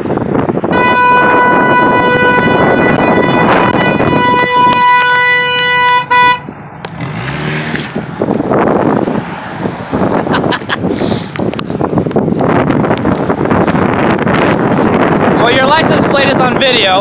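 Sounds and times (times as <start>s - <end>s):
wind on microphone: 0.0s - 17.0s
car horn blast: 0.7s - 6.5s
microphone handling noise: 10.0s - 15.4s.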